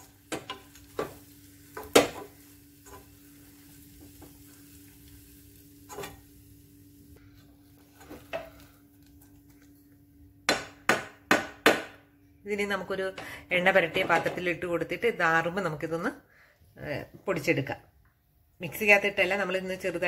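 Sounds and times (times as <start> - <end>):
faint sizzling: 0.0 - 10.2.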